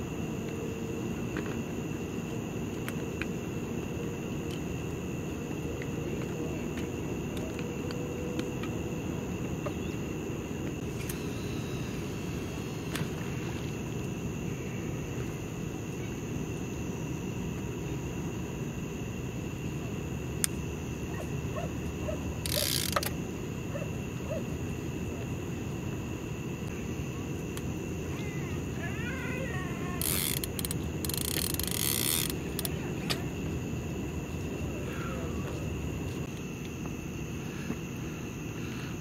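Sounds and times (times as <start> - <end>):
low outdoor night rumble: 0.0 - 39.0
fishing tackle clicks: 22.4 - 23.1.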